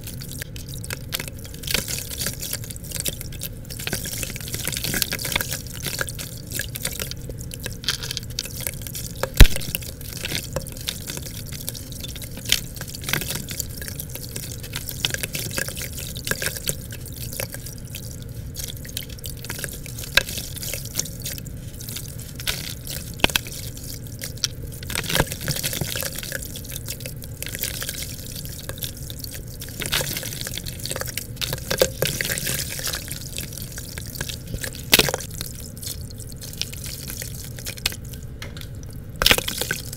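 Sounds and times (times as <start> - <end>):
dirt crumbs splashing into water: 0.2 - 39.9.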